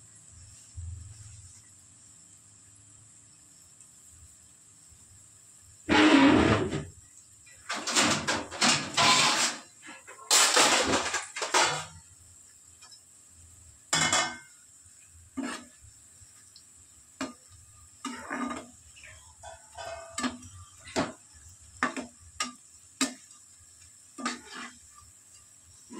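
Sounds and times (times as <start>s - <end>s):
metal utensil scraping pan: 5.9s - 6.8s, 7.6s - 12.0s, 15.4s - 15.8s, 18.0s - 21.2s, 21.8s - 23.4s, 24.2s - 25.9s.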